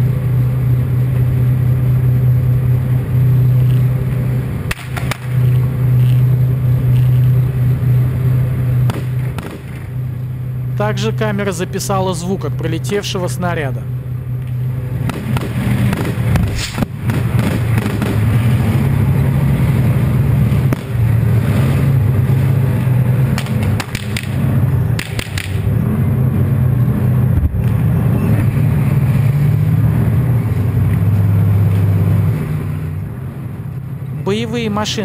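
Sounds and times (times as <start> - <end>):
tank diesel engine running: 0.0 - 35.0
sharp cracks: 4.6 - 6.2, 8.8 - 10.0, 15.0 - 18.5, 23.3 - 25.7.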